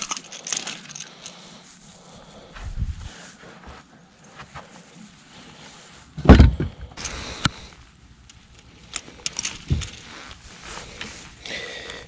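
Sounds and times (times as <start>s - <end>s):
metal clicks of pliers and hooks: 0.0s - 1.4s, 8.2s - 10.1s
thump on carpeted deck: 6.2s - 6.8s
net rustling: 8.4s - 12.0s.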